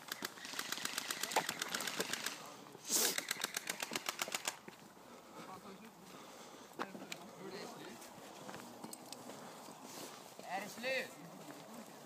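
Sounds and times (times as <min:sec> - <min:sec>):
airsoft guns firing full-auto: 0:00.0 - 0:02.5, 0:03.1 - 0:04.6.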